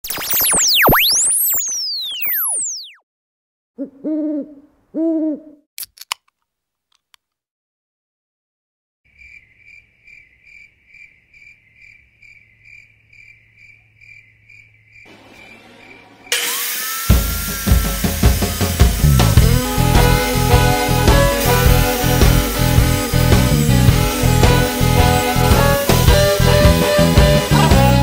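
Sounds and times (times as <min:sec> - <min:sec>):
owl hooting: 0:03.8 - 0:05.6
cricket chirping: 0:09.1 - 0:16.0
loud burst of noise: 0:15.1 - 0:27.7
rising hiss: 0:16.3 - 0:28.0.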